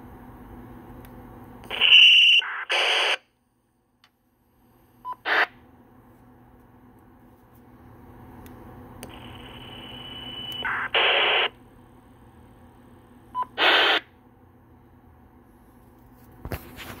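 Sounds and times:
radio squelch static bursts: 1.7 - 3.2, 10.6 - 11.5, 13.6 - 14.0.

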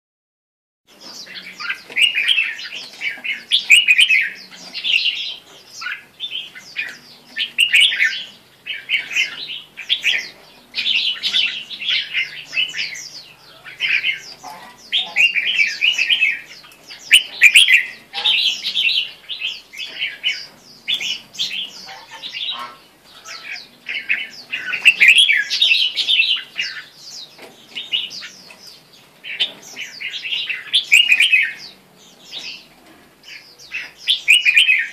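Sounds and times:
bird singing chirpy phrases: 0.9 - 34.9.

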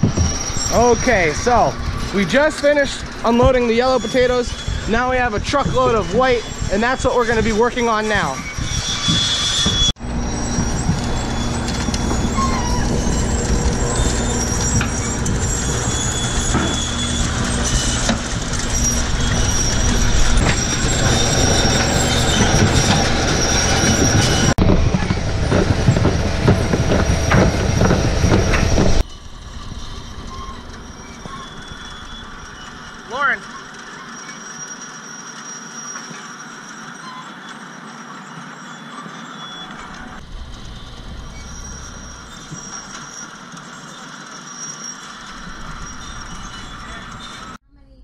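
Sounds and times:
conveyor mechanical rattle: 0.0 - 47.6
low motor drone: 10.0 - 31.4.

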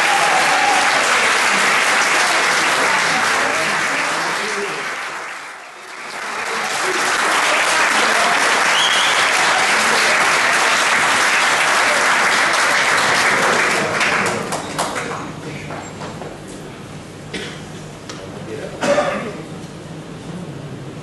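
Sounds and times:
audience applauding: 0.0 - 15.4.

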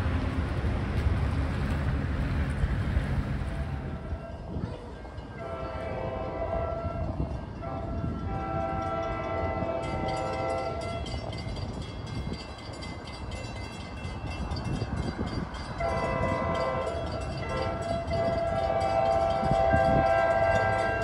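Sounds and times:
passing train rumble: 0.0 - 21.0
train horn chord: 5.4 - 11.2, 15.8 - 21.0.

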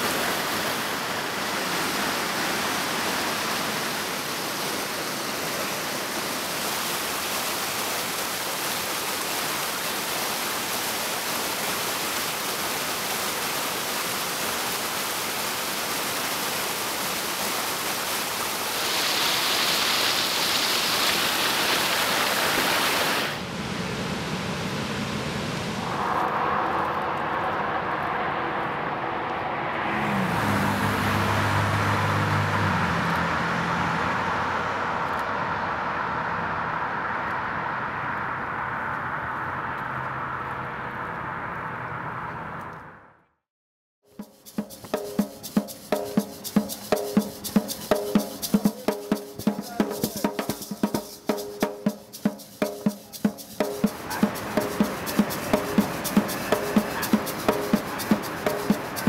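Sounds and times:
stream water rushing: 0.0 - 28.0, 29.6 - 34.4, 44.3 - 59.0
road noise: 0.0 - 43.4, 44.1 - 59.0
car passing: 18.6 - 43.3, 44.9 - 59.0.

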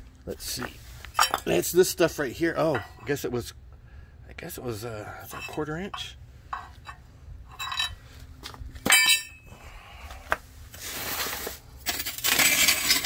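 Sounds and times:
metal brackets clinking: 1.2 - 1.7, 2.6 - 3.2, 5.2 - 8.0, 8.9 - 9.4
rustling: 10.7 - 11.7.

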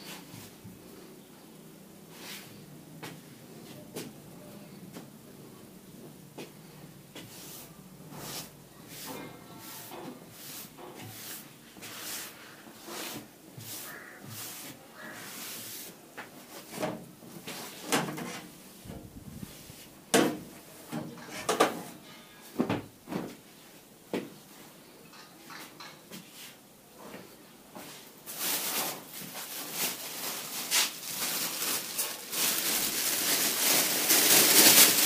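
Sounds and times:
objects knocking and clattering: 20.1 - 23.4
plastic bag rustling: 28.0 - 35.0.

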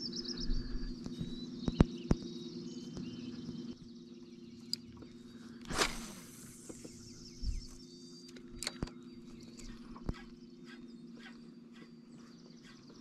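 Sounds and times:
small bird chirping: 0.0 - 13.0
steady low hum: 0.0 - 13.0
fishing rod swishing: 5.7 - 6.8
sharp clicks: 8.3 - 10.3.

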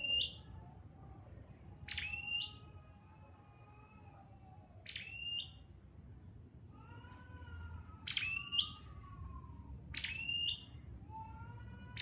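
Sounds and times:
bird calling sharp whistles: 10.0 - 10.7.

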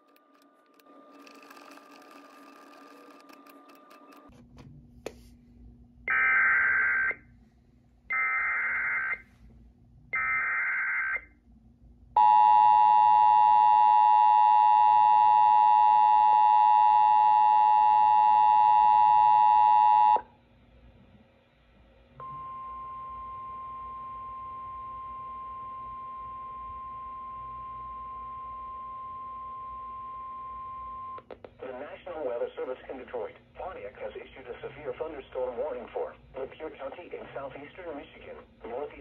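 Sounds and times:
steady single alarm tone: 12.2 - 20.3, 22.2 - 31.2
two-tone attention signal: 22.2 - 27.8.

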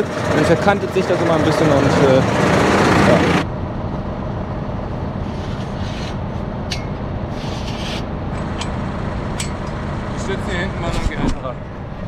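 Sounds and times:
steel stand scraping: 5.2 - 8.7.

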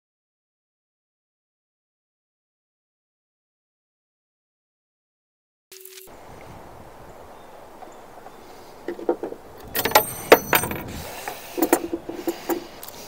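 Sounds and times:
wind hiss: 5.8 - 13.0
metal hardware clinking: 8.9 - 12.6.

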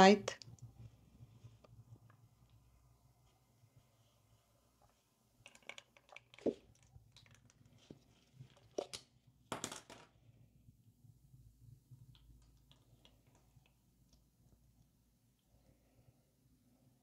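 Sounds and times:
thick batter pouring: 0.5 - 9.0.

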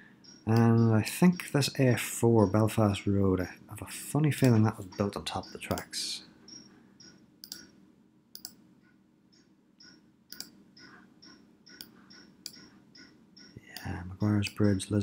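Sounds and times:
computer mouse clicks: 4.4 - 5.9, 6.5 - 8.6, 9.4 - 14.8.

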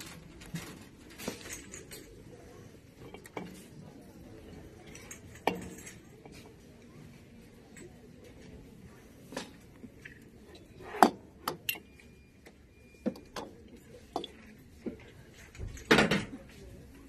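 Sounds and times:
hand tapping glass jars: 13.1 - 15.1.

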